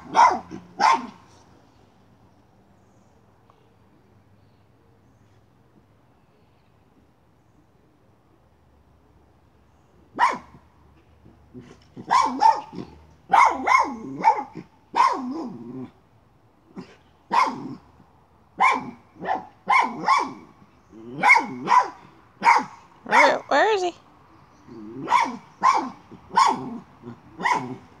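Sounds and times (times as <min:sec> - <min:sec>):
dog barking: 0:00.0 - 0:01.2, 0:10.2 - 0:10.6, 0:12.0 - 0:15.6, 0:16.8 - 0:17.8, 0:18.6 - 0:20.5, 0:21.1 - 0:23.5, 0:25.0 - 0:26.8, 0:27.4 - 0:27.8.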